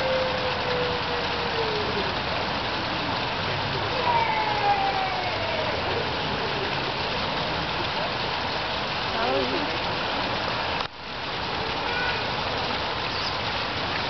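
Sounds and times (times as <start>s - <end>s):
outdoor background hiss: 0.0s - 14.0s
long falling tones: 3.8s - 7.2s.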